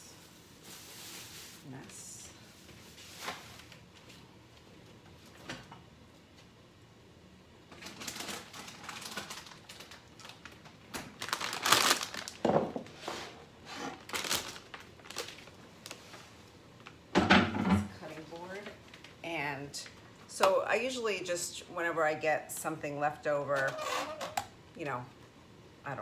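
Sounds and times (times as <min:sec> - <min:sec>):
plastic bag rustling: 0:00.0 - 0:04.3, 0:07.7 - 0:16.5
kitchen items clattering: 0:17.2 - 0:18.0.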